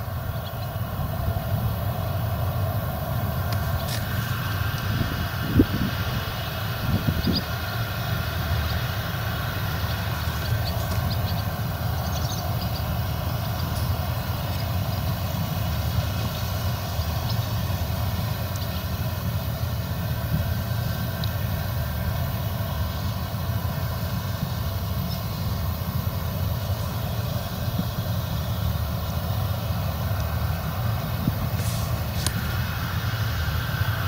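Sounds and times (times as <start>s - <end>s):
combine harvester rumbling: 0.0s - 34.0s.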